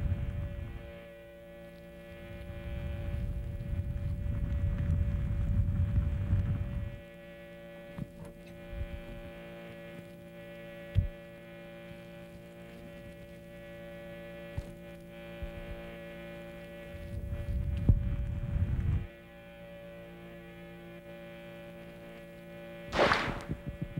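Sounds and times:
electrical hum: 0.0 - 23.9
short sharp clicks: 23.0 - 23.6.

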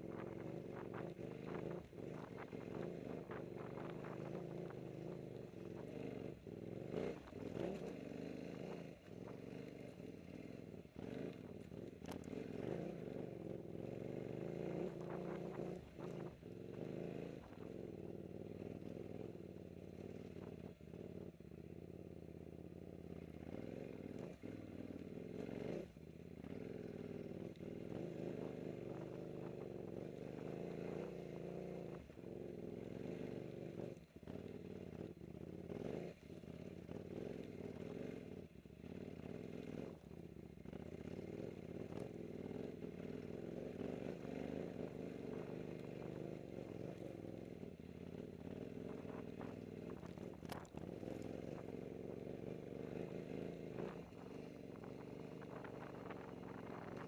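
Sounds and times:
motorcycle engine running: 0.0 - 57.0
knocks and rattles of bike: 38.9 - 52.0.

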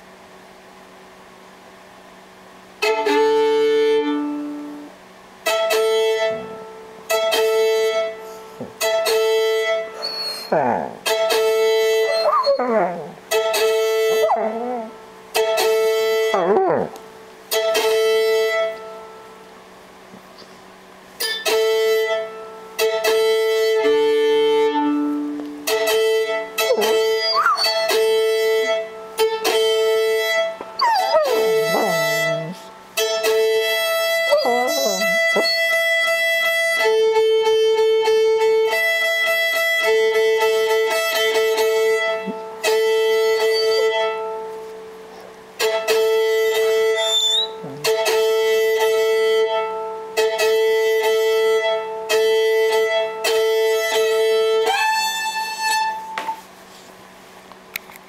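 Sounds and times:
violin being tuned: 2.8 - 19.3, 21.2 - 56.4
dog howling: 10.0 - 11.0, 12.0 - 15.0, 16.2 - 17.0, 26.6 - 28.3, 30.8 - 32.7, 34.2 - 35.7, 43.2 - 44.2, 46.7 - 48.0.

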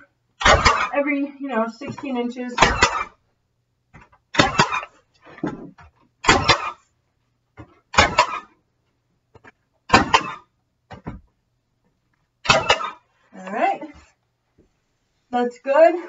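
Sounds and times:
knocks of tool being moved: 5.2 - 6.0.

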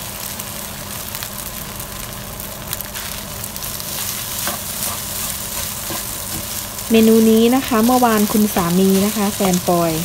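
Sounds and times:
rice sizzling in frying pan: 0.0 - 10.0
spatula scraping and tapping pan: 4.3 - 6.7.

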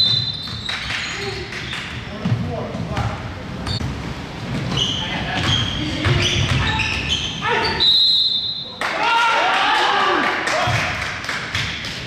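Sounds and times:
referee's whistle: 0.0 - 0.7, 7.1 - 8.8
sneakers squeaking: 0.0 - 8.8
basketball bouncing: 2.2 - 7.1.

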